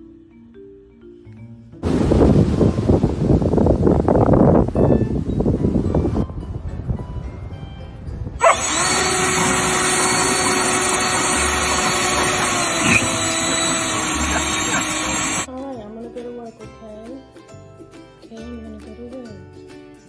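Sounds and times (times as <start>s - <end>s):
leaf blower whining: 8.4s - 15.5s.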